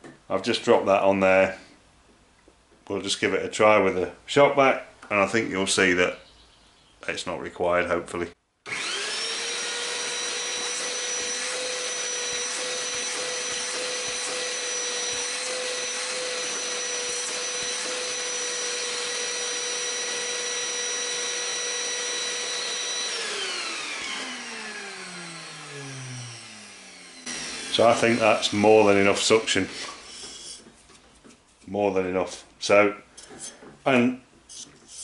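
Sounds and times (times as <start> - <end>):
shop vac whining: 8.7 - 32.2.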